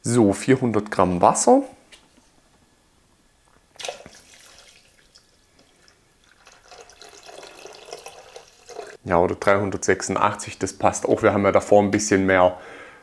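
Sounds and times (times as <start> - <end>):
water pouring into bowl: 3.8 - 9.0.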